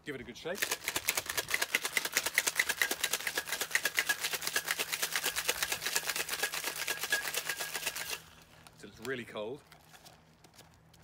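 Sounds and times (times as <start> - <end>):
ice rattling in cocktail shaker: 0.6 - 8.3.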